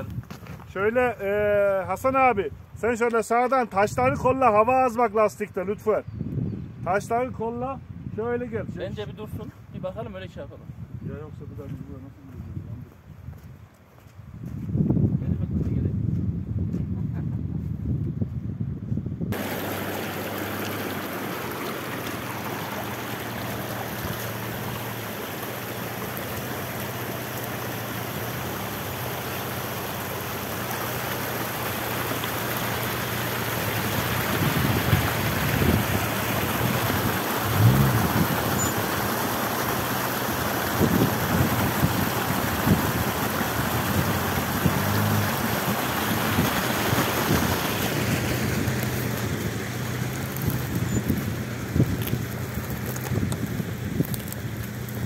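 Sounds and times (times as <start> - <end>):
vehicle engine running: 19.4 - 55.0.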